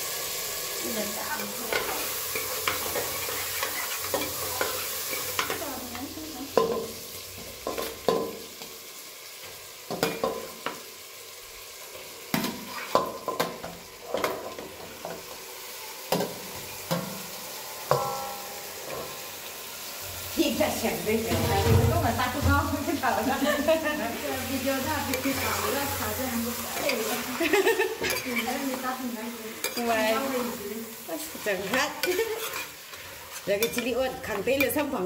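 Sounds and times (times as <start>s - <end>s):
food sizzling in a pot: 0.0s - 35.0s
utensil scraping a pot: 1.7s - 5.4s, 26.7s - 28.8s, 31.2s - 34.8s.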